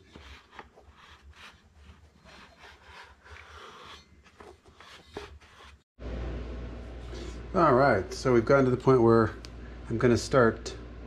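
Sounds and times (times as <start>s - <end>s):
fingers rubbing foam: 0.0s - 5.8s
steady low hum: 6.0s - 11.0s.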